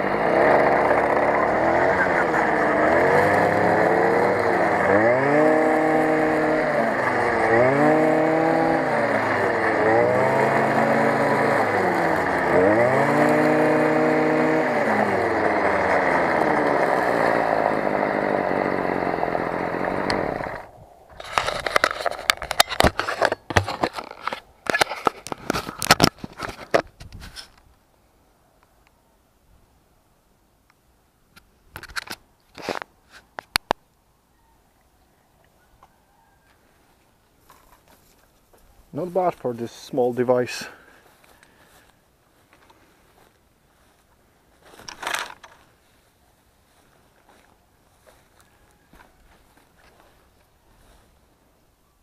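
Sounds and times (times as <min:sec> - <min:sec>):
brush cutter engine cutting grass: 0:00.0 - 0:27.6, 0:38.9 - 0:46.1, 0:46.7 - 0:51.2
camera handling knocks and rattles: 0:21.1 - 0:27.5, 0:31.7 - 0:33.8, 0:44.8 - 0:45.6.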